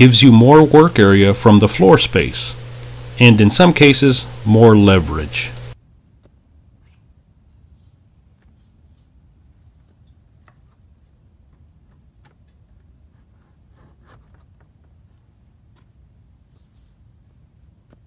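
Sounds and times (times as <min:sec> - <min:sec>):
low steady rumble: 0:00.0 - 0:05.8.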